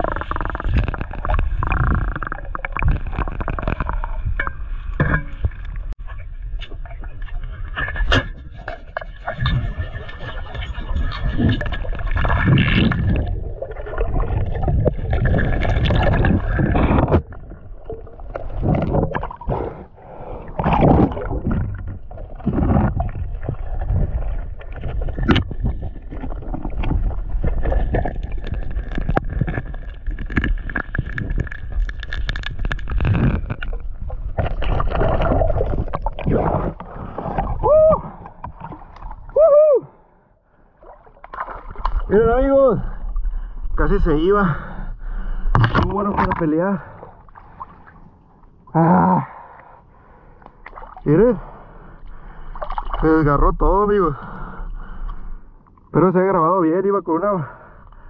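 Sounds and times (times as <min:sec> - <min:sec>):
muffled underwater water noise: 0:00.0 - 0:58.0
swooping gurgles: 0:08.9 - 0:29.0, 0:34.3 - 0:40.0.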